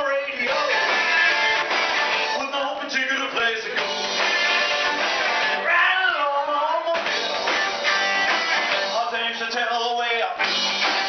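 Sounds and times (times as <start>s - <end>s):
drums: 0.0s - 11.0s
electric guitars: 0.0s - 11.0s.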